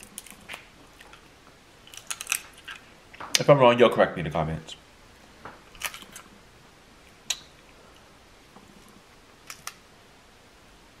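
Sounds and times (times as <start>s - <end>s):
crab shells cracking: 0.0s - 2.9s, 5.7s - 6.3s, 9.4s - 9.8s.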